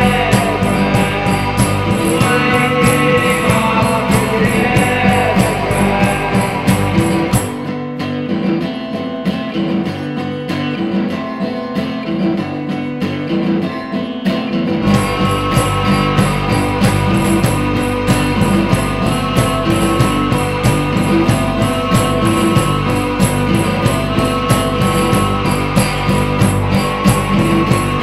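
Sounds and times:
lo-fi rock band playing: 0.0 - 8.5, 14.5 - 28.0
guitar playing alone: 0.0 - 28.0.

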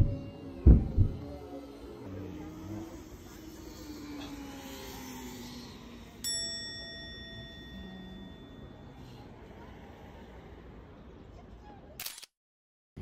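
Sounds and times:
bright chime: 6.2 - 9.2.

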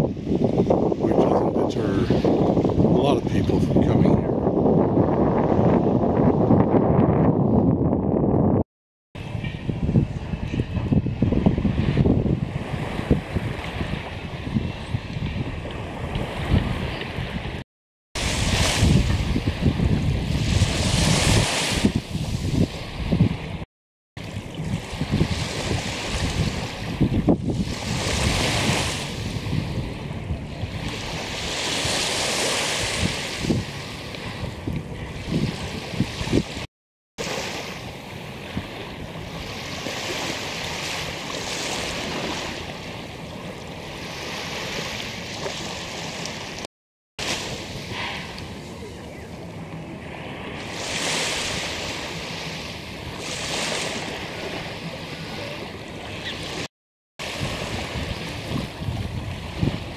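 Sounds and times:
wind buffeting microphone: 0.0 - 8.6, 9.2 - 17.6, 18.2 - 23.6, 24.2 - 46.6, 47.2 - 59.9
small waves washing on sandy shore: 18.2 - 23.6, 24.2 - 59.9.

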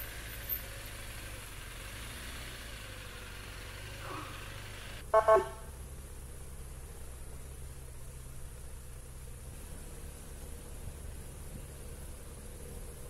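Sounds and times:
engine humming: 0.0 - 13.0
vehicle horn tooting: 5.0 - 5.7.

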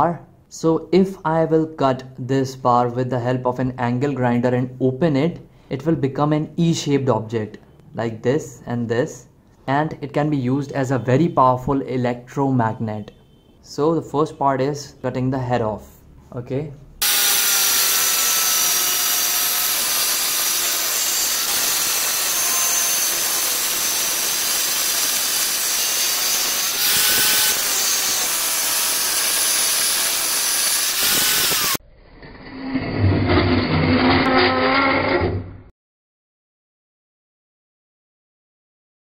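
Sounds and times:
angle grinder cutting steel: 17.0 - 31.8.

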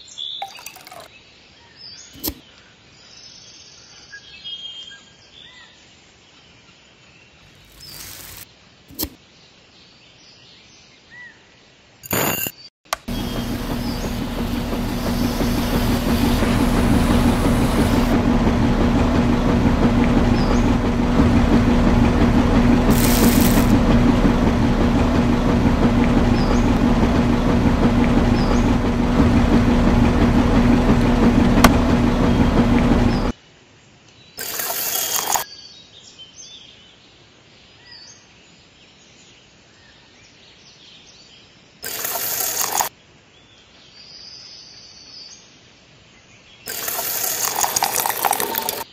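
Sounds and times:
small motor humming: 7.4 - 9.2, 12.0 - 33.3, 34.4 - 35.4, 41.8 - 42.9, 46.7 - 48.8.

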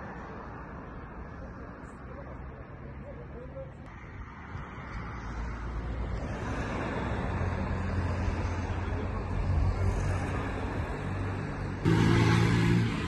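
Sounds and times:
vehicle engine humming: 4.7 - 13.0.

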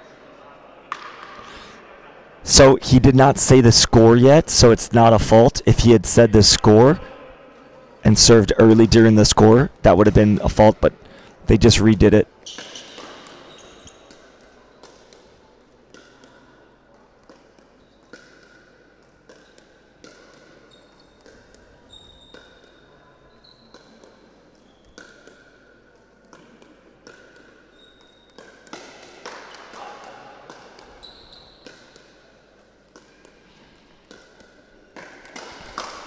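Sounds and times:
shoes squeaking on court: 12.0 - 15.3, 17.8 - 18.5, 19.3 - 25.6, 27.1 - 28.8, 30.5 - 32.2.

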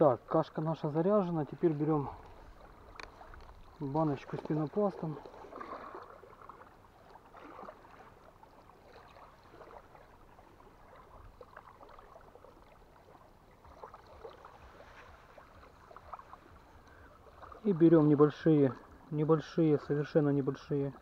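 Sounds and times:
water washing at shore: 0.0 - 21.0.

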